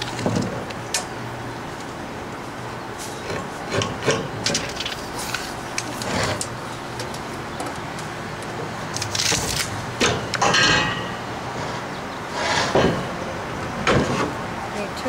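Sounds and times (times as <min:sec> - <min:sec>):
steady background hum: 0:00.0 - 0:15.0
knocks and rustling of plywood: 0:00.1 - 0:00.7.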